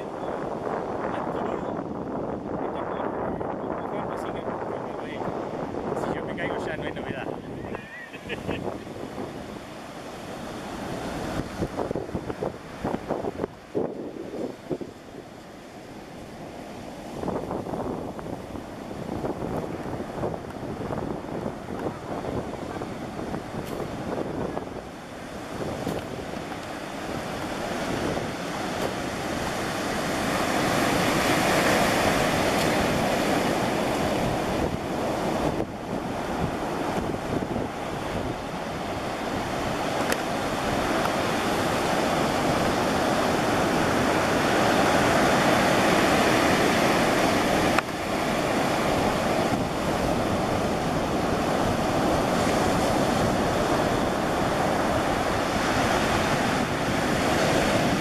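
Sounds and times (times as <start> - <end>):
ocean surf breaking on beach: 0.0 - 58.0.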